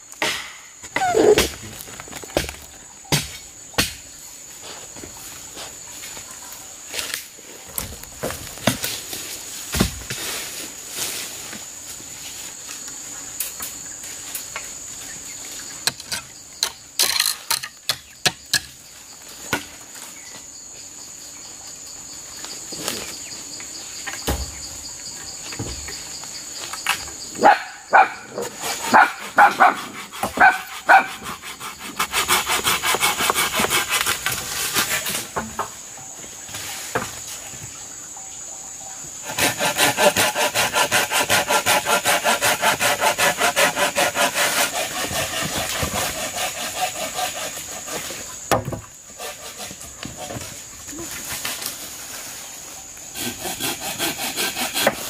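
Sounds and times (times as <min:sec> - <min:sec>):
high insect drone: 0:00.0 - 0:55.0
saw cutting wood: 0:28.6 - 0:34.8, 0:39.2 - 0:48.2, 0:49.2 - 0:50.4, 0:53.2 - 0:55.0.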